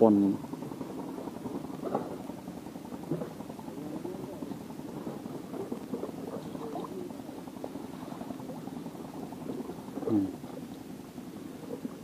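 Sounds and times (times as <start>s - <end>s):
water bubbling and sloshing: 0.1s - 12.0s.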